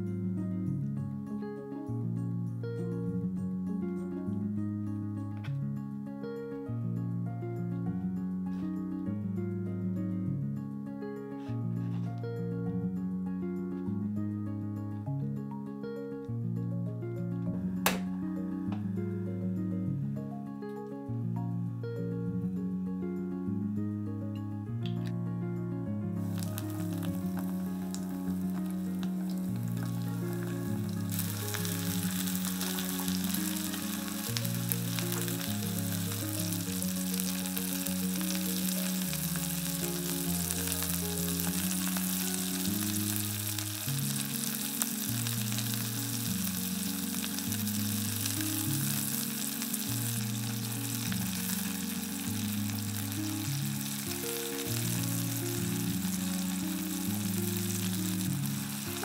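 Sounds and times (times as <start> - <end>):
food sizzling in frying pan: 26.2 - 59.0.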